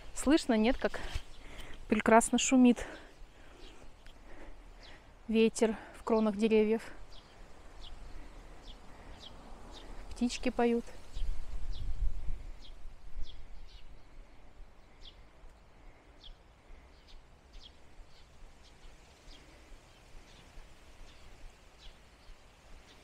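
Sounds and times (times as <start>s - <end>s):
small birds chirping: 0.0s - 23.0s
wind rushing: 11.0s - 13.9s.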